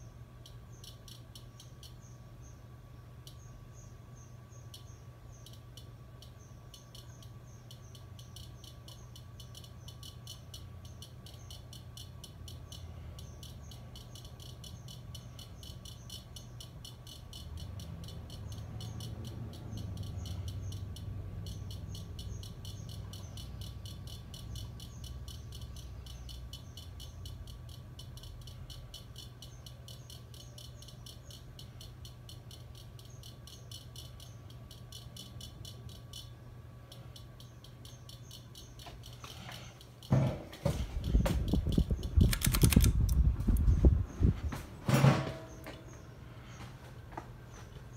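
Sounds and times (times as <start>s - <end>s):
ceiling fan humming: 0.0s - 47.9s
rapid even clicking: 41.0s - 43.7s.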